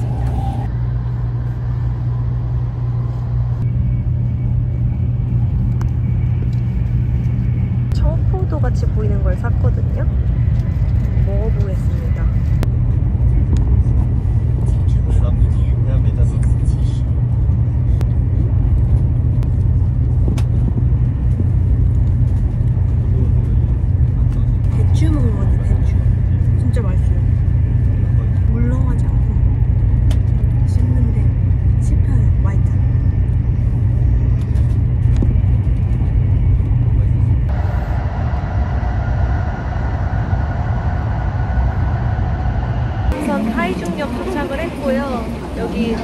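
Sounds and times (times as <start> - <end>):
train running rumble: 0.0 - 46.0.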